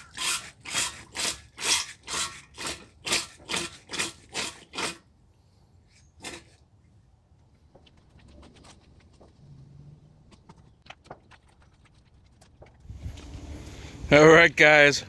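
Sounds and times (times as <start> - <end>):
hand pump squirting water: 0.0 - 5.0, 6.2 - 6.6, 10.2 - 13.4.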